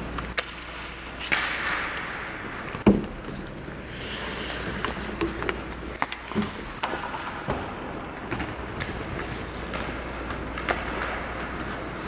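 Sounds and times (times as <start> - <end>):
hockey sticks and puck clacking: 0.0 - 12.0
skates scraping ice: 0.0 - 12.0.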